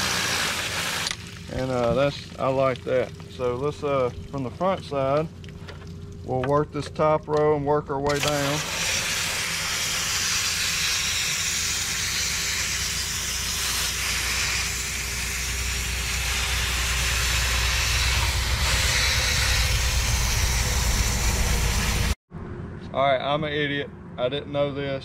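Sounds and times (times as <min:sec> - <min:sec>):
water spray hissing: 0:08.2 - 0:22.2
low rumble: 0:14.9 - 0:24.4.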